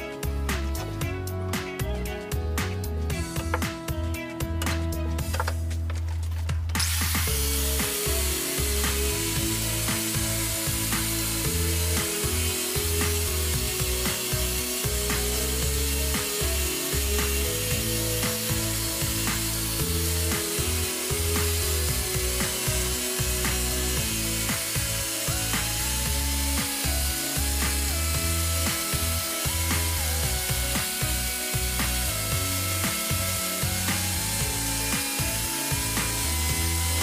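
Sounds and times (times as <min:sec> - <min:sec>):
angle grinder grinding metal: 0:00.0 - 0:05.9, 0:06.8 - 0:37.0
background music with beat: 0:00.0 - 0:37.0.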